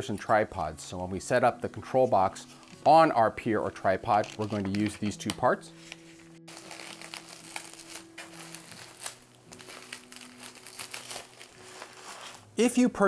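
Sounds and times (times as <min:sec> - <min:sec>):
bubble wrap crackling: 0:03.9 - 0:12.8.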